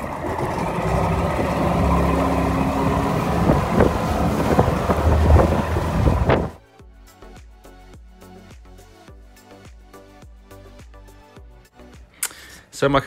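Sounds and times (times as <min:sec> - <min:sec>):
outboard motorboat engine running: 0:00.0 - 0:06.6
wind on microphone: 0:02.3 - 0:06.6.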